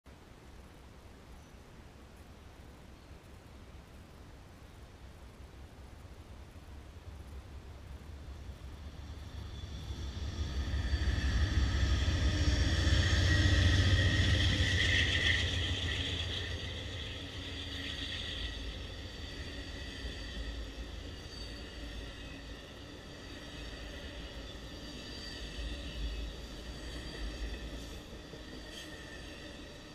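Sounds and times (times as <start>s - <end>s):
high whine: 6.4s - 29.9s
train wheels on rail: 7.9s - 29.9s
diesel locomotive rumble: 8.1s - 24.7s.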